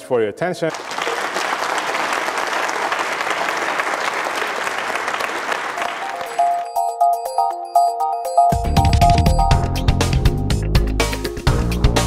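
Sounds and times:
audience applauding: 0.7s - 7.3s
outro music: 5.8s - 12.0s.

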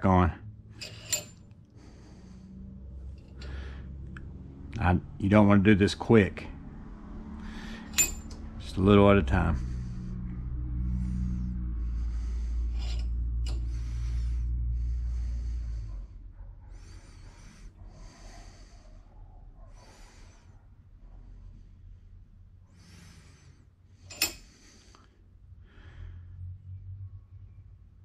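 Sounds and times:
low steady hum: 0.0s - 28.0s
man breathing through nose: 0.8s - 4.6s, 7.3s - 8.6s, 9.5s - 26.6s.

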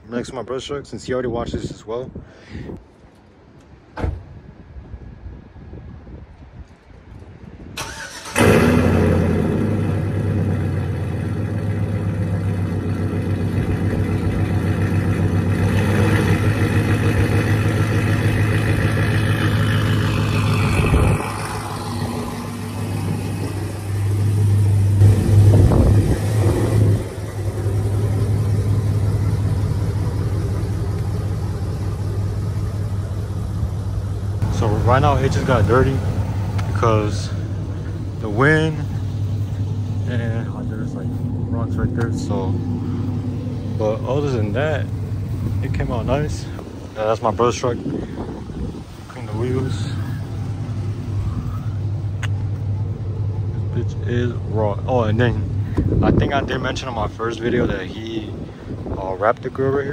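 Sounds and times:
pickup truck engine starting: 7.8s - 59.9s
truck engine revving and idling: 7.8s - 59.9s.

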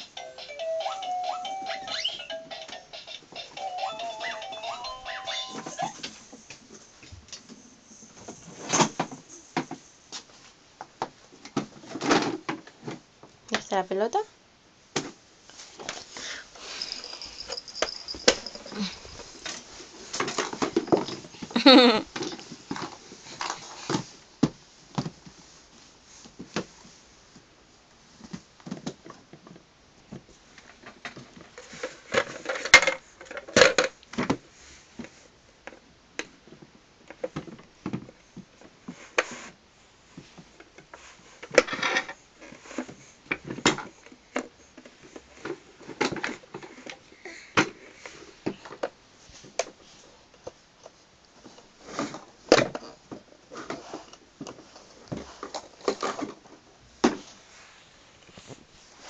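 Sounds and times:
plastic toys clicking and clattering: 16.8s - 24.1s, 30.6s - 34.4s, 51.4s - 56.6s.

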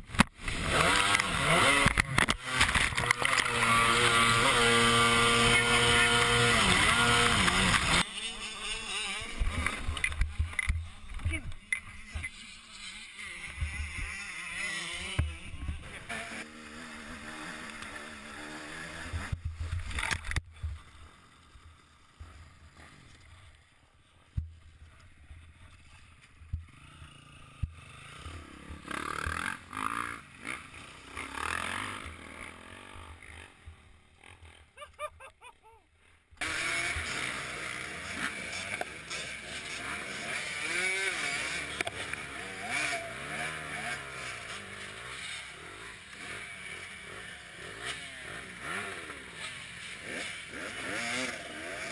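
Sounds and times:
dirt bike engine running: 0.0s - 35.0s, 36.0s - 51.9s
motocross bike engine revving: 0.0s - 51.9s
jet ski engine: 1.8s - 19.2s, 36.4s - 49.8s.

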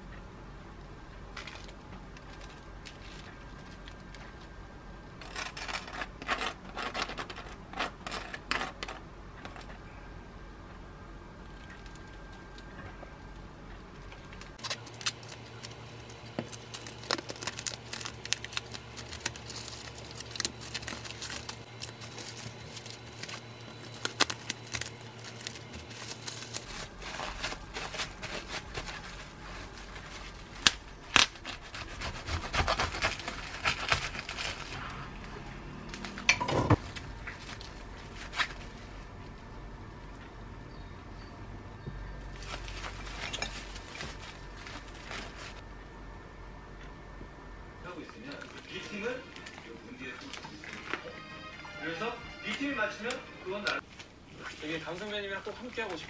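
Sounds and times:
cling film crinkling: 14.0s - 40.1s, 42.3s - 45.6s, 47.9s - 56.0s.

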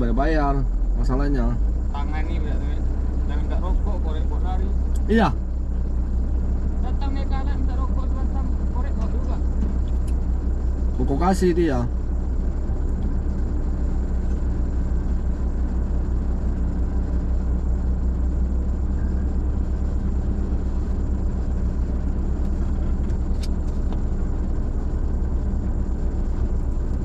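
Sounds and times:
vehicle engine and road rumble: 0.0s - 27.0s.

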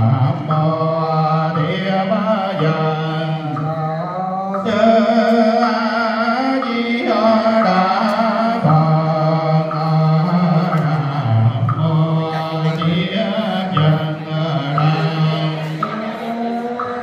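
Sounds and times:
monks chanting through microphone: 0.0s - 17.0s.

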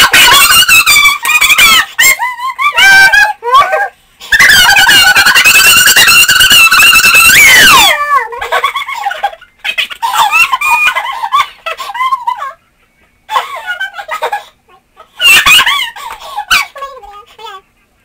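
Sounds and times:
squeaky giggling: 8.3s - 12.6s.

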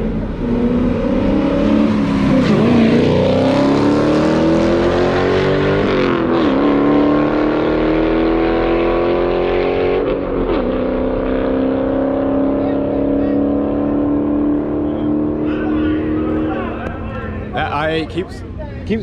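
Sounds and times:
car engine accelerating hard: 0.0s - 18.2s.

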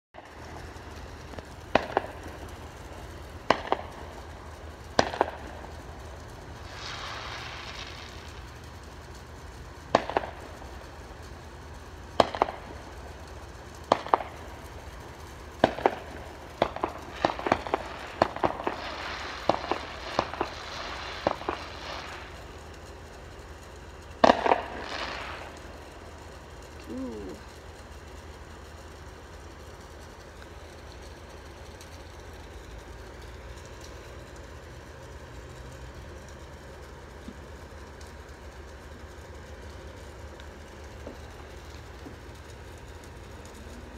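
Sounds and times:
fireworks bangs: 0.2s - 11.3s, 11.9s - 23.4s, 24.0s - 27.5s
fireworks hiss: 0.2s - 11.3s, 12.0s - 23.1s, 24.0s - 27.7s.

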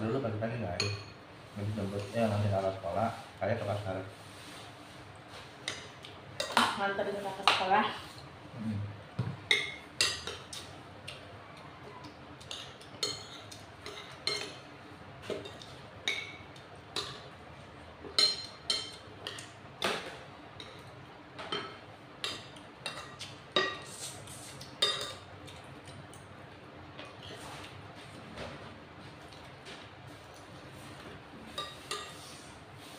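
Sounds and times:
cutlery clinking on plates: 12.4s - 17.4s, 24.6s - 26.3s, 31.5s - 32.4s.

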